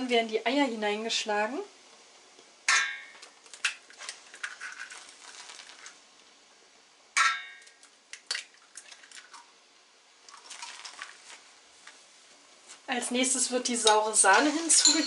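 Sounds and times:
eggshell cracking: 3.1s - 6.0s, 7.5s - 9.5s.

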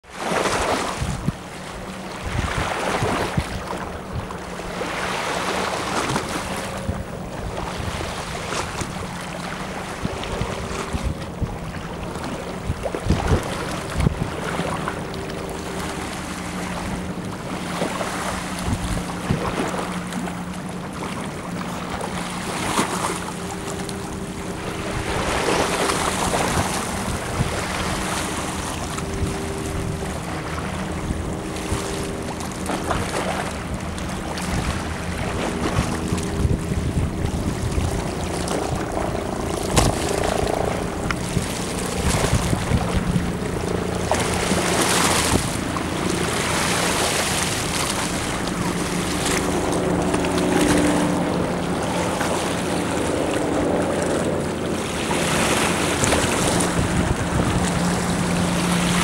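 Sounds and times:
tugboat engine humming: 0.0s - 59.0s
waves washing: 0.0s - 59.0s
wind buffeting microphone: 0.4s - 59.0s.

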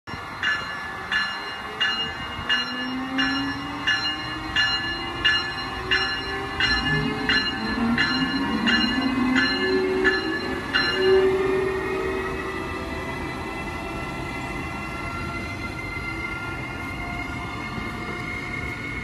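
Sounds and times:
locomotive bell ringing: 0.1s - 13.6s
electric locomotive whine: 0.1s - 19.0s.

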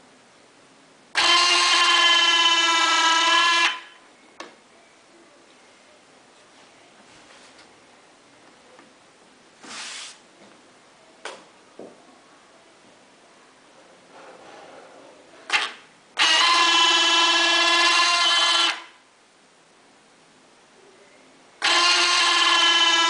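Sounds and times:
short hiss: 9.6s - 10.2s
geared motor whine: 15.5s - 19.0s, 21.6s - 23.0s.

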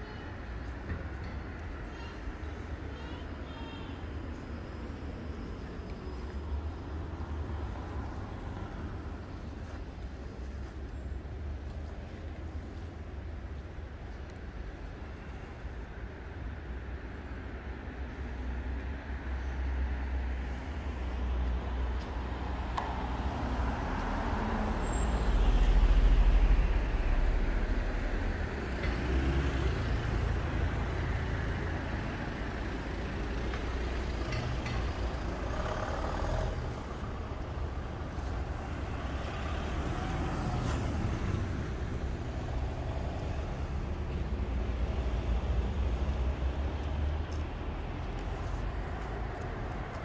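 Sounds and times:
motor vehicles passing: 20.4s - 50.0s.

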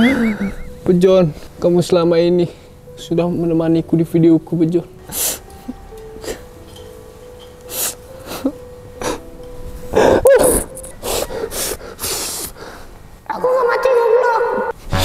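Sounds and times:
man sobbing: 0.0s - 0.8s
sharp sniffs: 5.1s - 5.5s, 7.7s - 9.2s, 10.0s - 12.9s.

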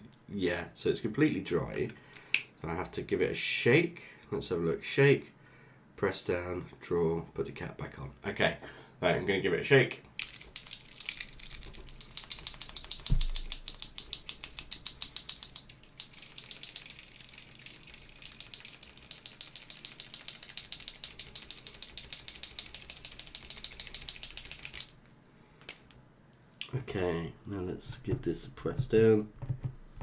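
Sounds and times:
marker ball rattling: 10.2s - 25.0s.

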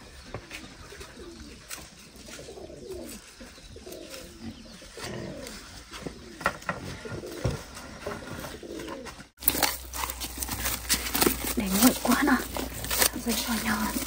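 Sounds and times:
dove cooing: 0.3s - 9.3s.

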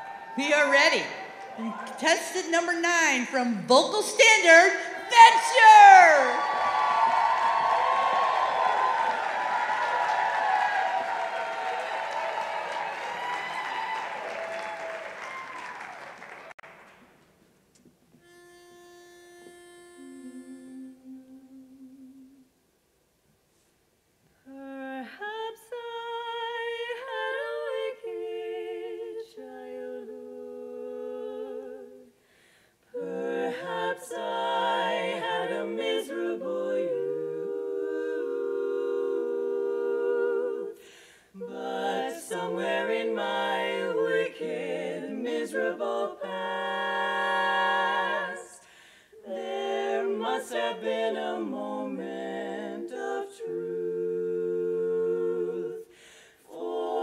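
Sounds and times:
women singing a cappella harmony: 18.2s - 22.5s, 24.4s - 32.2s, 32.9s - 57.0s.

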